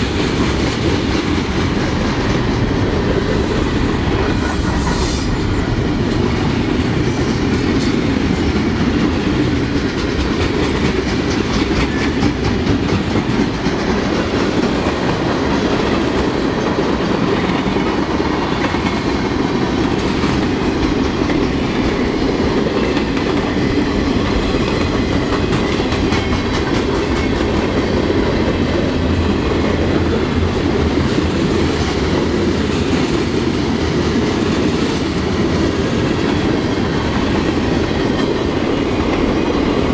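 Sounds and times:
freight train wheels rumbling: 0.0s - 39.9s
wheels clacking over rail joints: 5.7s - 30.2s.

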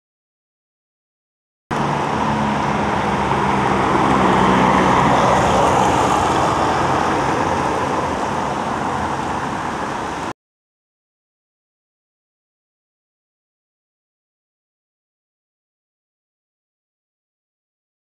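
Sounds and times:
passing cars: 1.7s - 10.4s.

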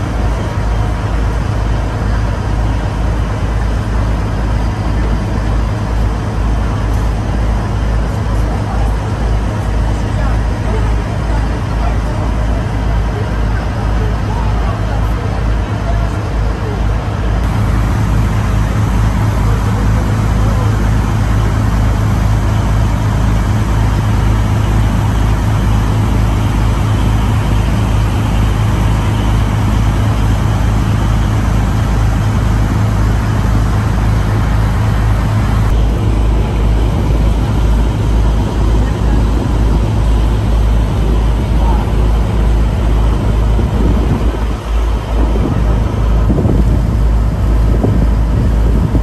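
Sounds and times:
boat engine rumble: 0.0s - 49.0s
low buffeting: 0.0s - 49.0s.

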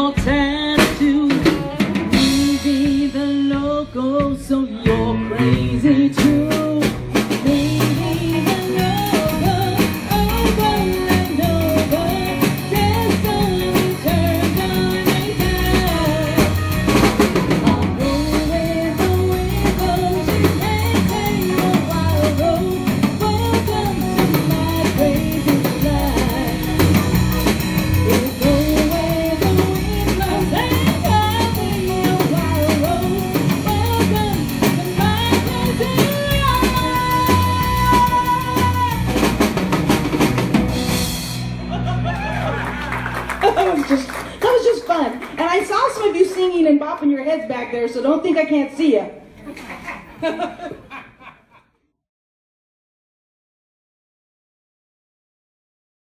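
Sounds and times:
woman singing: 0.0s - 39.5s
electric guitar: 0.0s - 45.4s
drum kit beat: 0.0s - 46.6s.

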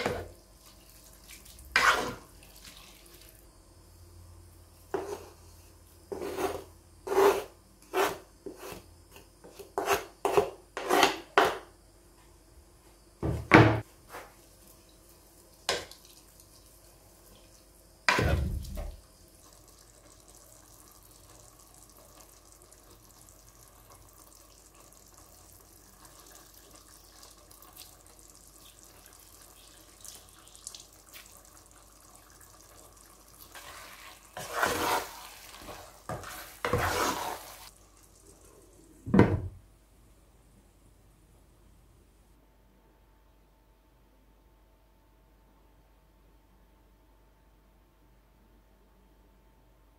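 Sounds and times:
pot simmering hiss: 0.0s - 13.1s, 13.8s - 41.1s
wooden spoon stirring in pot: 33.5s - 37.7s.

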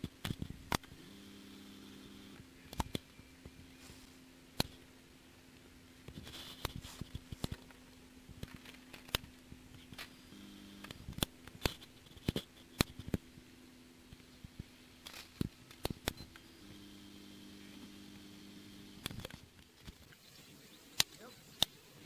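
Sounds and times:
sharp clicks and crackles: 0.0s - 1.0s, 2.1s - 3.6s, 4.5s - 4.9s, 5.5s - 13.5s, 14.1s - 16.5s, 18.9s - 20.2s, 20.9s - 21.8s
faint steady hum: 0.0s - 22.0s.

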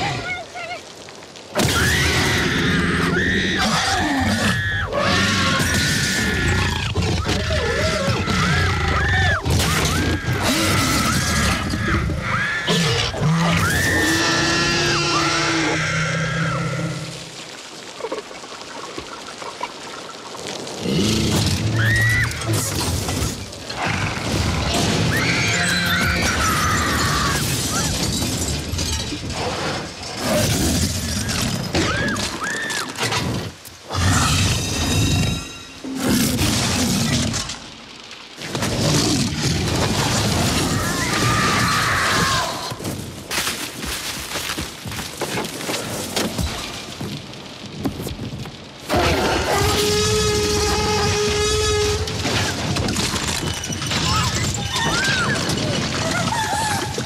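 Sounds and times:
rain-like hiss: 0.0s - 57.0s
crumpling metal crashes: 21.4s - 32.3s, 48.8s - 57.0s
children screaming: 21.7s - 22.6s, 25.0s - 28.0s, 31.2s - 32.9s, 40.5s - 42.8s, 54.0s - 57.0s
glass breaking: 26.5s - 29.4s
glass shattering: 26.5s - 29.4s.

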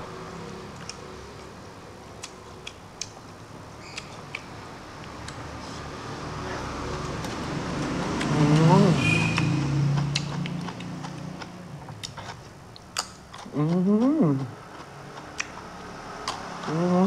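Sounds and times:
lip-smacks and chewing clicks: 0.7s - 1.5s, 2.2s - 3.2s, 3.8s - 5.5s, 9.3s - 13.5s, 14.4s - 16.7s
man humming: 13.5s - 14.6s, 16.7s - 17.0s.

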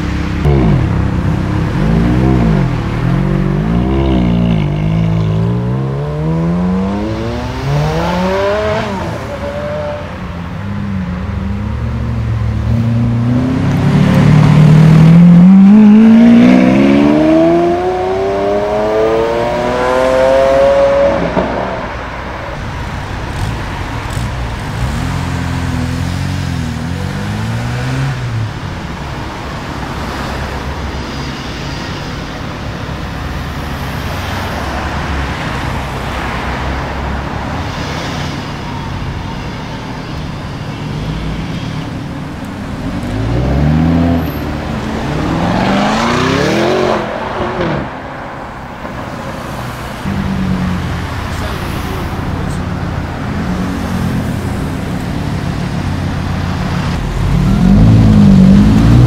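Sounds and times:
car engines rumbling: 0.0s - 59.0s
engine revving through gears: 57.0s - 59.0s.

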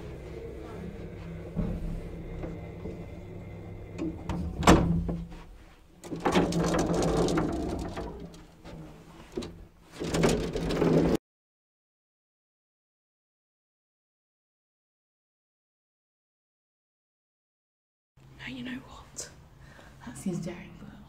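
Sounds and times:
lift humming: 0.0s - 11.2s
metal lattice gate rattling: 6.0s - 11.2s.

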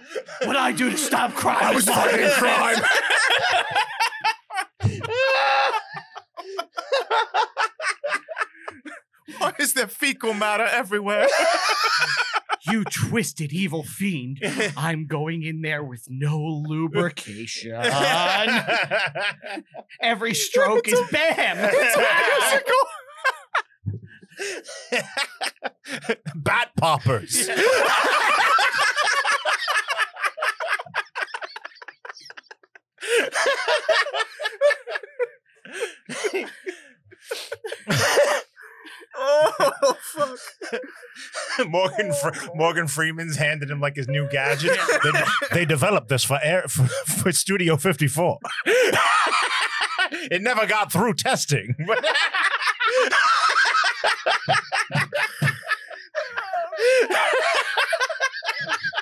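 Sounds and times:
people laughing: 0.0s - 15.0s, 16.3s - 59.0s.

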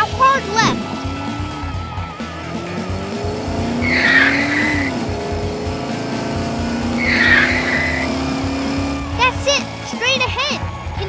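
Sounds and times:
car engine drone: 0.0s - 11.0s
tyre screech: 3.7s - 5.0s, 6.8s - 8.4s.

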